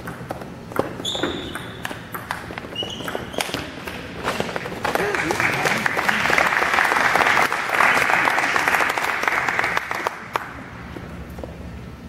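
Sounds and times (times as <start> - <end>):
ping pong ball clicks: 0.0 - 4.0
shoes squeaking on floor: 0.8 - 1.8, 2.5 - 4.8.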